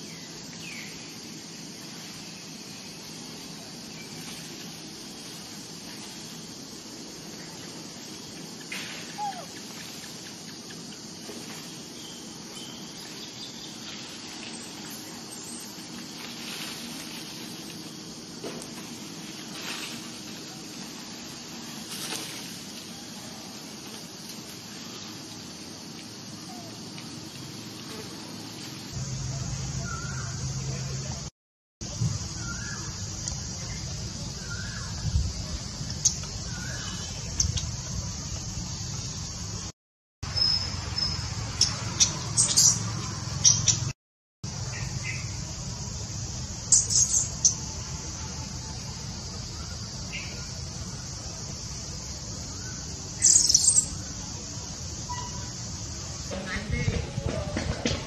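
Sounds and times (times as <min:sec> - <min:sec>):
insects buzzing: 0:00.0 - 0:58.0
outdoor hiss: 0:00.0 - 0:58.0
short faint chirping calls: 0:08.3 - 0:16.6, 0:46.6 - 0:47.7, 0:52.4 - 0:54.2.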